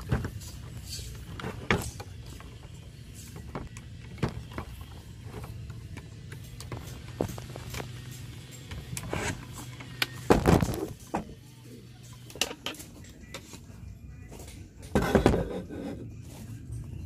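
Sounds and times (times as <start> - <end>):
objects clattering being handled: 0.0 - 11.4, 14.3 - 16.5.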